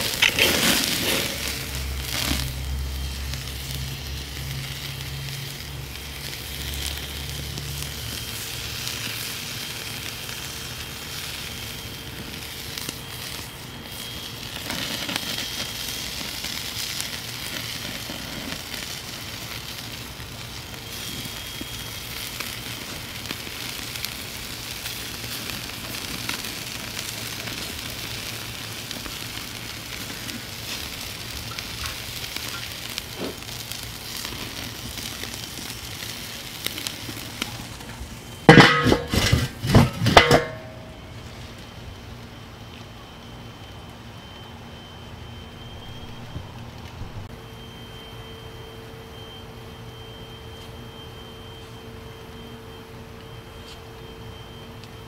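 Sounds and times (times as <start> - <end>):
steak sizzling on a grill: 0.0 - 42.8
crackling charcoal: 0.0 - 55.0
low rumble: 45.7 - 47.3.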